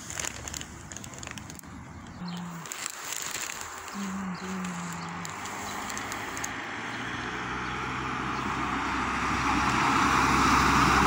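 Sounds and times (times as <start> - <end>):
car approaching: 0.0 - 11.0.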